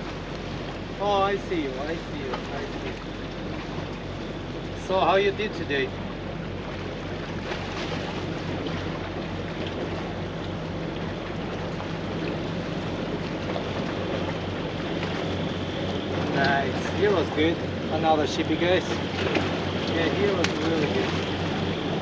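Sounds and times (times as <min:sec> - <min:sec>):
distant boat engine drone: 0:00.0 - 0:22.0
wind: 0:00.0 - 0:22.0
water washing against rocks: 0:18.8 - 0:21.8.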